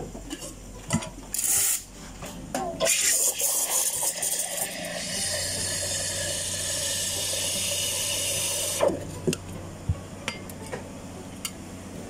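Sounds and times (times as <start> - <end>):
drink machine hissing: 1.3 - 1.9, 2.8 - 9.3.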